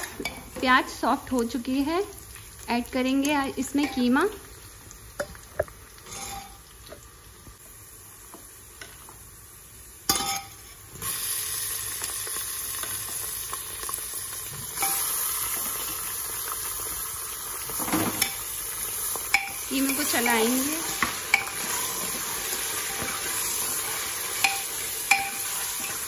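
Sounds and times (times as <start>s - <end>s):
meat sizzling in hot oil: 0.0s - 26.0s
meat hitting oil with hiss: 10.0s - 26.0s.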